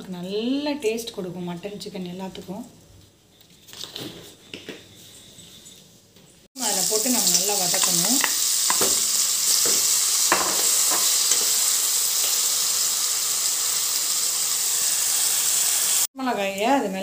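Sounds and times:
mushrooms sizzling in oil: 6.6s - 16.1s.

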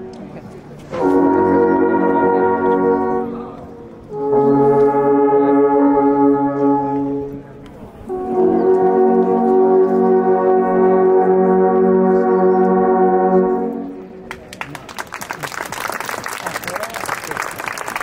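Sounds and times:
alphorns playing held chords: 0.0s - 14.2s.

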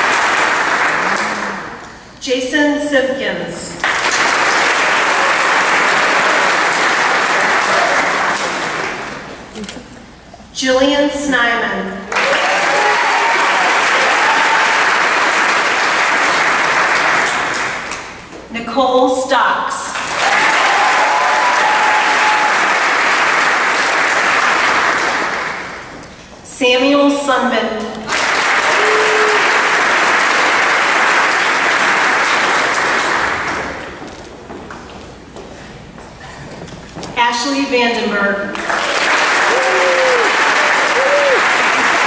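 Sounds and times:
audience applause: 0.0s - 1.8s, 3.8s - 9.5s, 12.1s - 18.2s, 20.0s - 26.0s, 28.1s - 34.2s, 38.5s - 42.0s.

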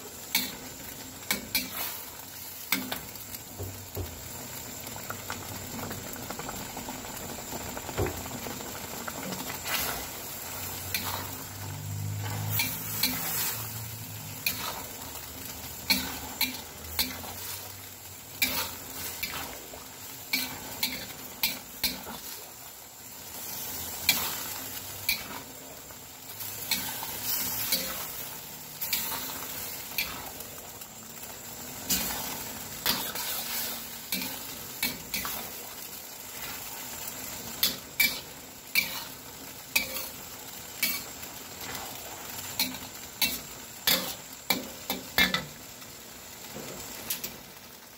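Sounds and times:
noodles sizzling in a wok: 0.0s - 47.9s
metal spatula scraping a wok: 9.3s - 22.5s, 23.2s - 30.6s, 31.6s - 45.6s.

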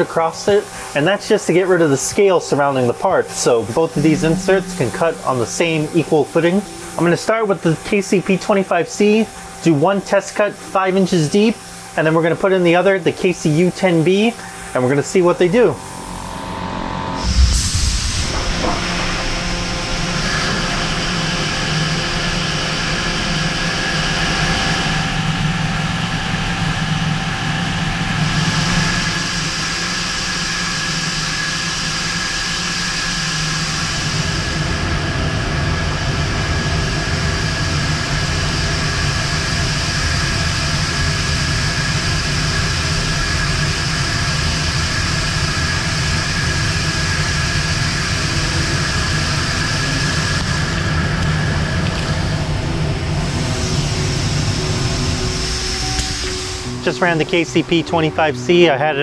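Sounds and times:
lathe machining steel: 0.0s - 59.0s
deep rumble: 2.5s - 7.8s, 16.6s - 23.1s.

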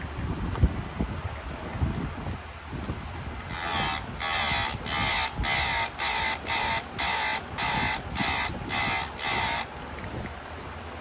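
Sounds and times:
file scraping chainsaw chain: 3.5s - 9.7s.

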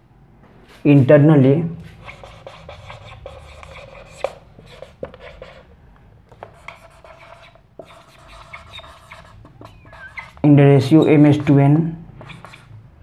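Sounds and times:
marker pen scratching on whiteboard: 1.8s - 5.7s, 6.3s - 12.8s.

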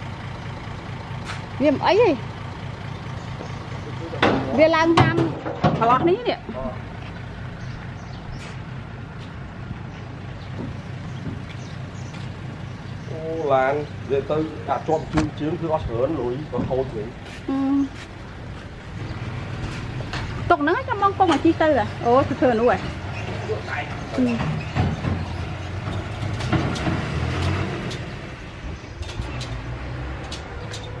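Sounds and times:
engine running steadily: 0.0s - 31.0s
sharp clicks and rattles: 22.6s - 31.0s.

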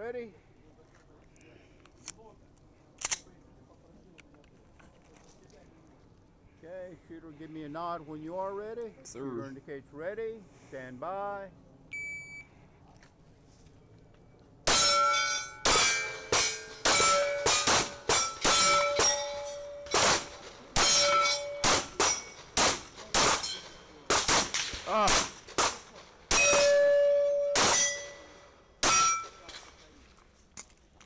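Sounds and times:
shot timer beep: 11.9s - 12.5s
pistol shots: 14.7s - 29.6s
steel targets clanging: 14.7s - 29.9s.

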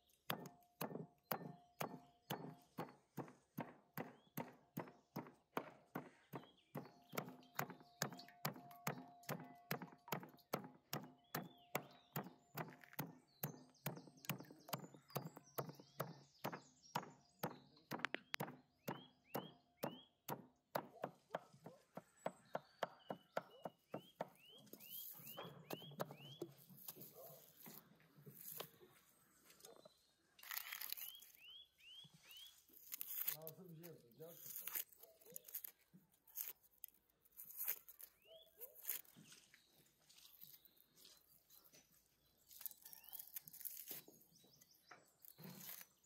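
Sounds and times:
cleaver chopping meat on wood: 0.2s - 26.5s.

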